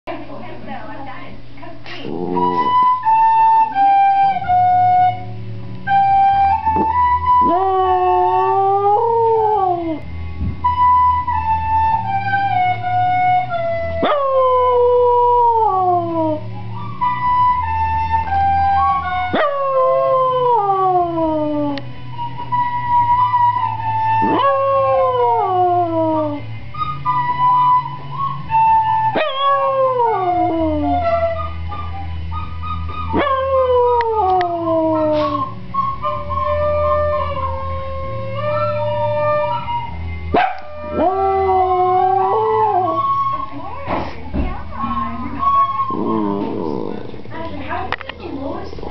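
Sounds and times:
recorder notes: 0:01.4 - 0:48.9
small dog howling: 0:19.4 - 0:21.8, 0:24.2 - 0:26.4, 0:29.2 - 0:31.1, 0:33.1 - 0:35.5, 0:40.4 - 0:43.2, 0:45.8 - 0:47.2.

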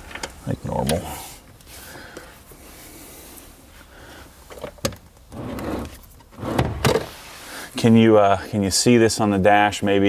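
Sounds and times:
rubbing and shuffling: 0:01.6 - 0:07.7.

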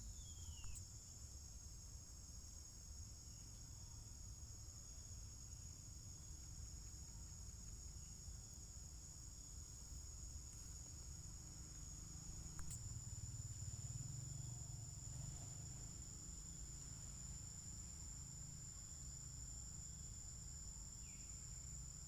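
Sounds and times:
insects chirring: 0:00.0 - 0:22.0.

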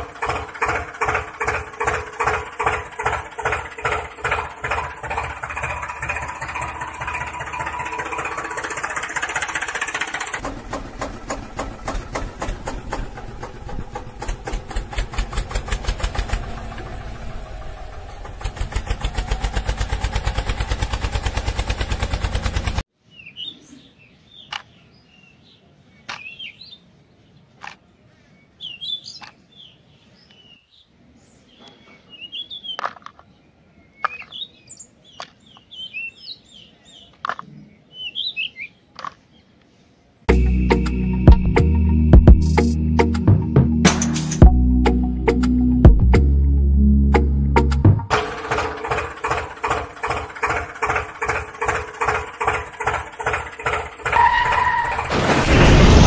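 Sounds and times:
faster-running engine: 0:00.0 - 0:22.8, 0:48.1 - 0:56.0
tractor engine pulsing: 0:00.0 - 0:22.8, 0:40.3 - 0:55.4
birds chirping: 0:23.0 - 0:43.0.

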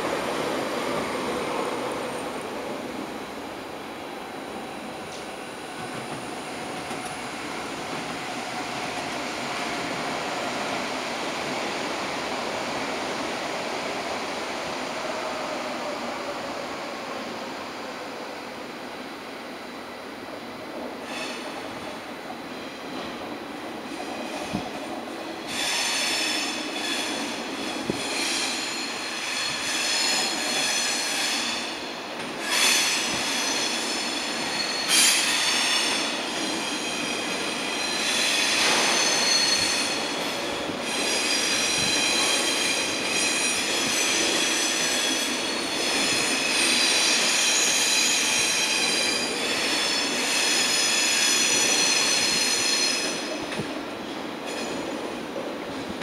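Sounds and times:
train wheels squealing: 0:21.0 - 0:21.9, 0:25.4 - 0:53.4, 0:54.4 - 0:55.0.

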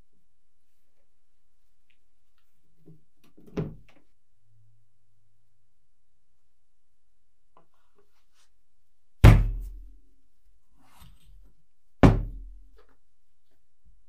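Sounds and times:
faint handling sounds: 0:00.5 - 0:04.2.

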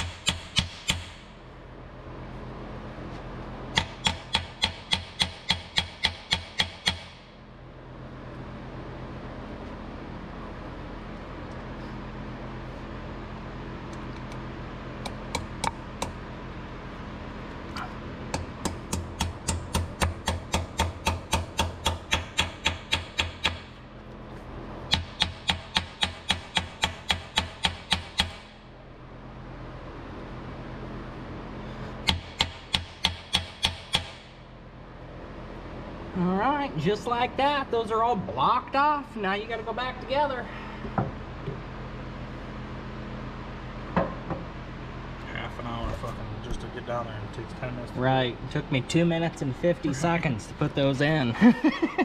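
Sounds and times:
steady low hum: 0:00.0 - 0:52.0
small hammer tapping metal: 0:18.3 - 0:23.6.

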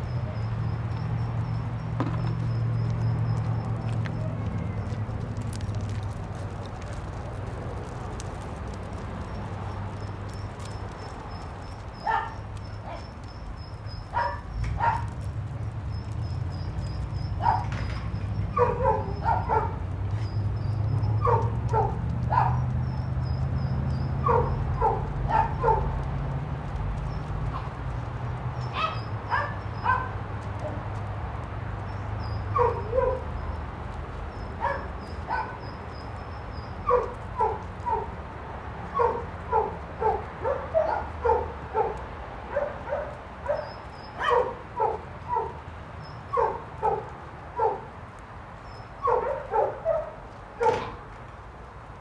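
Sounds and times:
dog barking: 0:12.0 - 0:13.1, 0:14.1 - 0:15.1, 0:17.4 - 0:17.7, 0:18.5 - 0:19.8, 0:21.2 - 0:22.6, 0:24.2 - 0:25.9, 0:28.7 - 0:30.2, 0:32.5 - 0:33.3, 0:34.6 - 0:35.6, 0:36.8 - 0:38.1, 0:38.9 - 0:45.6, 0:46.3 - 0:47.9, 0:49.0 - 0:51.0.

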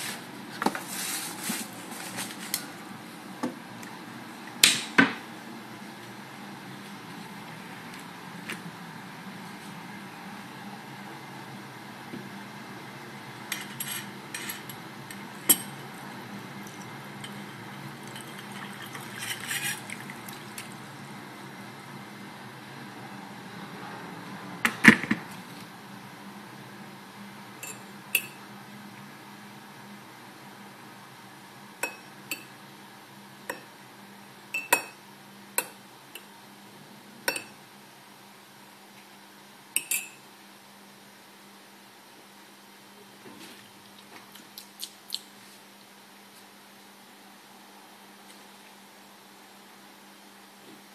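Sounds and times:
water pouring into a mug: 0:16.6 - 0:20.8.

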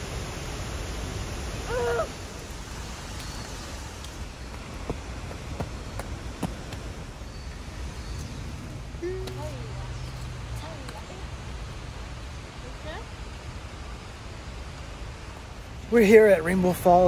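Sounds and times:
waterfall roaring: 0:00.0 - 0:17.0
hooting call: 0:01.6 - 0:02.3.

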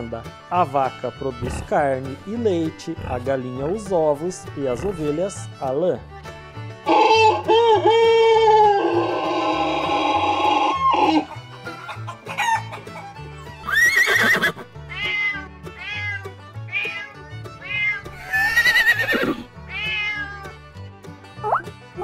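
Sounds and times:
background music: 0:00.0 - 0:22.0
rooster crowing: 0:12.3 - 0:12.8
cat meowing: 0:13.7 - 0:20.5.

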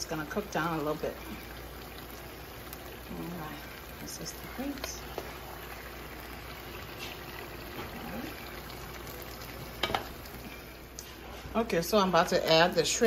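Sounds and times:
pot bubbling and hissing: 0:00.0 - 0:13.0.

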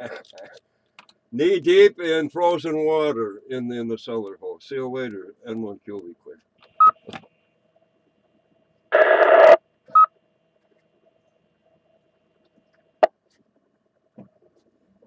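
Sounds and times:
radio squelch static: 0:08.9 - 0:09.6.

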